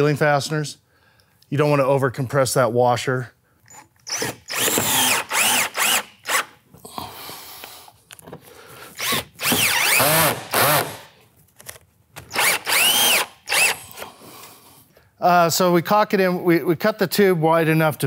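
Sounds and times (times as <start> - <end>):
cordless drill driving screws: 3.7 - 6.6, 8.9 - 11.1, 12.2 - 14.0.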